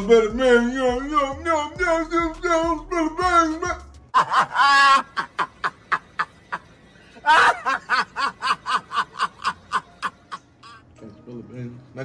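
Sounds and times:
man laughing hard: 4.1s - 10.8s.

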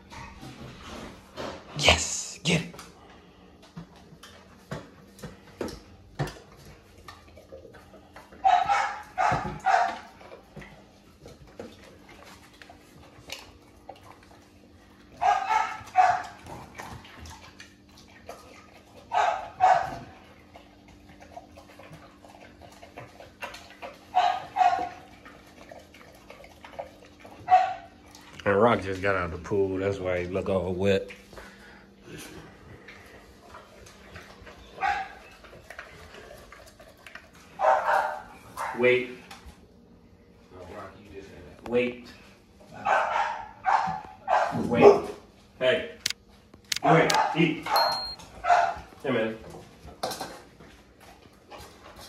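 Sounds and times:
dog eating from metal bowl: 2.9s - 39.7s, 46.0s - 52.0s
dog barking: 8.4s - 10.1s, 15.2s - 16.4s, 19.1s - 20.1s, 24.1s - 25.0s, 27.5s - 27.9s, 34.8s - 35.2s, 37.6s - 38.8s, 42.8s - 45.2s, 47.1s - 48.9s.

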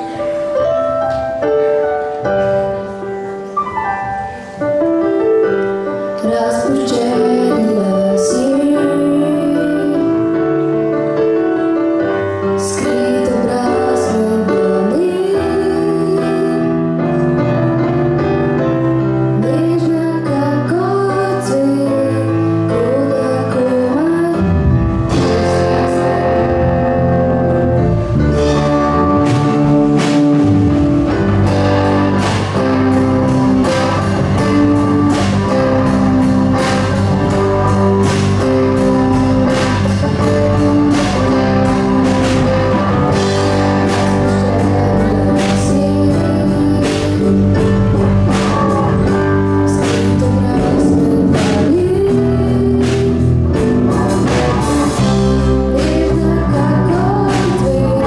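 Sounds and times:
drums: 0.0s - 58.0s
rock band playing live: 0.0s - 58.0s
young person singing: 6.2s - 10.4s, 12.6s - 17.1s, 19.4s - 27.2s, 28.4s - 58.0s.

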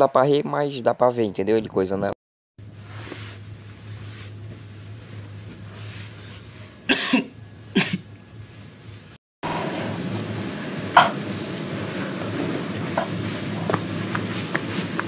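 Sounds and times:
low room hum: 0.0s - 15.0s
person coughing: 6.9s - 8.1s, 11.0s - 11.2s.

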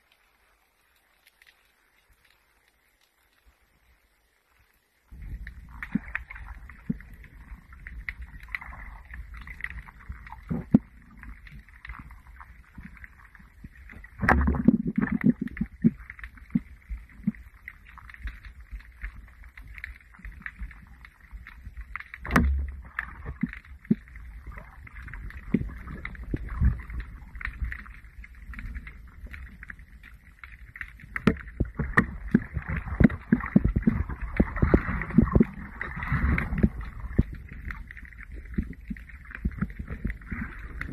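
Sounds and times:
muffled underwater water rushing: 0.0s - 40.9s
sharp clicks and knocks: 22.2s - 24.0s.

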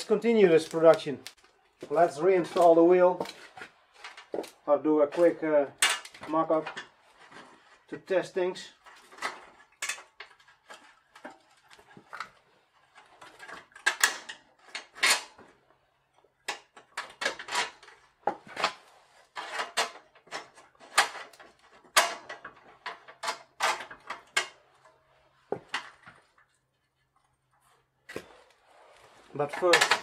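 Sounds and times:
metal clicks and knocks of bicycle hub: 16.4s - 18.8s.

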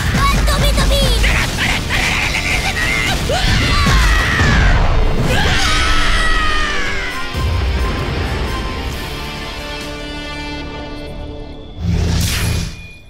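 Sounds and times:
rumbling impacts: 0.0s - 10.1s
soundtrack music: 0.0s - 13.0s
person screaming: 2.2s - 7.4s.

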